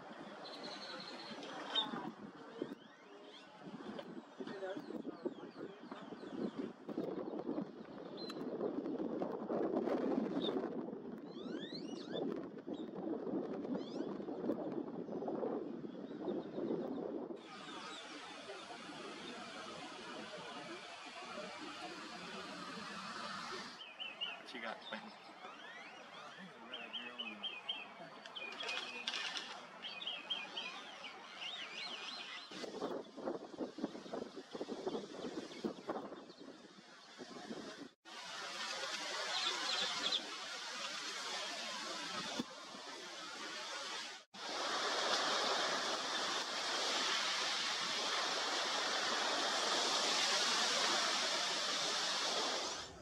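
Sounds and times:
songbird chirping: 0.0s - 6.8s, 17.6s - 33.3s
steady rushing hiss: 17.4s - 24.9s, 28.3s - 53.0s.

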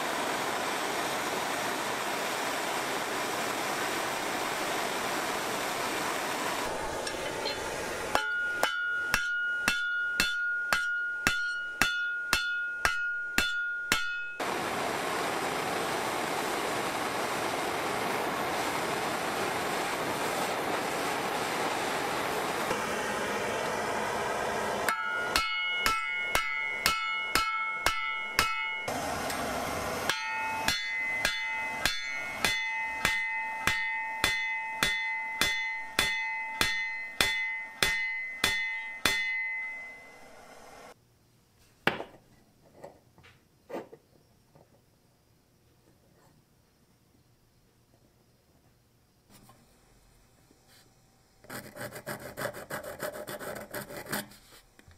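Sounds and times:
gas torch hissing: 0.0s - 8.2s, 14.4s - 25.0s
hammer ringing on steel: 8.1s - 14.4s, 24.9s - 28.9s, 30.1s - 40.9s.

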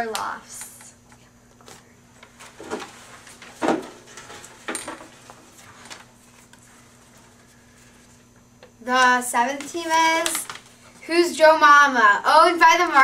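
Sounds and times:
paper rustling: 1.6s - 8.2s, 9.0s - 11.0s.

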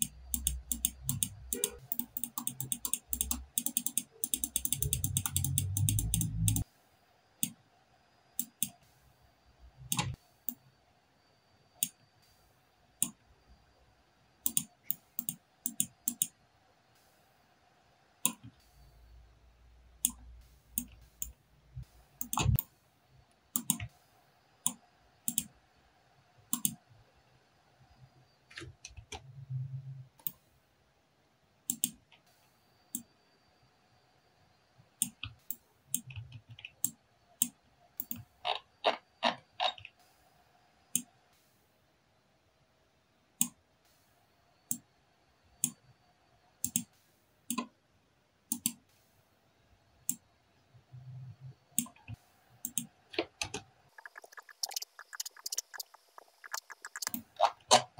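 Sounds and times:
keyboard keys clicking: 0.0s - 6.6s, 54.0s - 57.3s
mouse buttons clicking: 0.0s - 6.6s, 14.4s - 16.3s, 18.2s - 18.5s, 22.2s - 22.6s, 23.6s - 23.9s, 24.7s - 25.5s, 26.5s - 26.8s, 31.7s - 32.0s, 46.6s - 46.9s, 48.5s - 48.8s, 51.8s - 57.5s.

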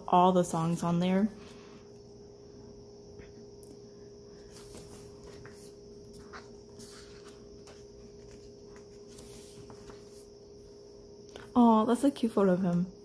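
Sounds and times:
faint hum: 0.0s - 13.0s
page turning: 4.4s - 10.3s
paper pages rustling: 4.4s - 10.4s.

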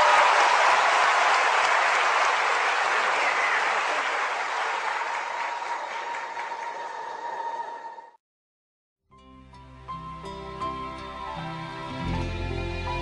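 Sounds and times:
audience applauding: 0.0s - 8.2s.

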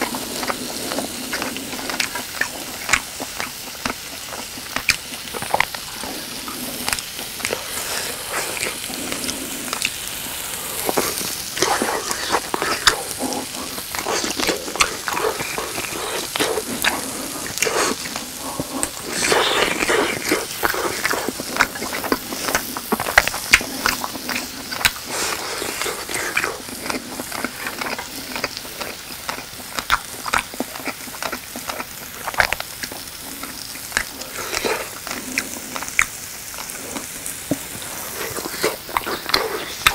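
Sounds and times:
cheese sizzling on grill plate: 0.0s - 39.9s
chewing and mouth noises: 0.0s - 39.9s.

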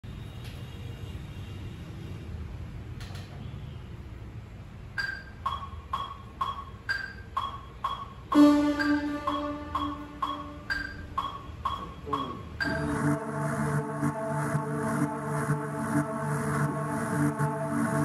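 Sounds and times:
plucked synth note pattern: 5.5s - 18.0s
low steady hum: 12.6s - 18.0s
sustained synth chord with bass: 12.6s - 18.0s.

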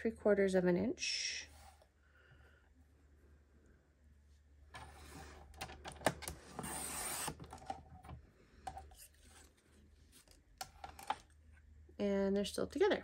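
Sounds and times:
paper trimmer blade scraping: 6.6s - 7.5s.

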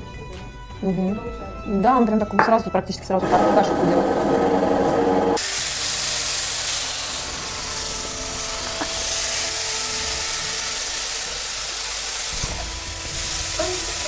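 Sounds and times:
cheese sizzling in frying pan: 5.4s - 14.0s.

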